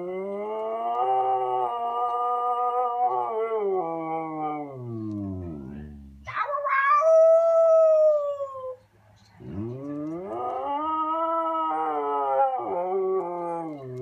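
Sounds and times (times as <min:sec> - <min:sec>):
dog howling: 0:00.0 - 0:05.8, 0:09.4 - 0:14.0.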